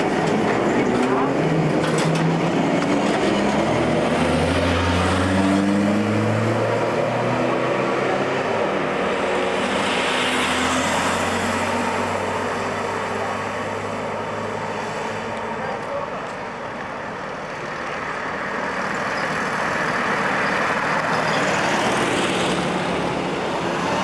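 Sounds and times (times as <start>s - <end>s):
passing road traffic: 0.0s - 24.0s.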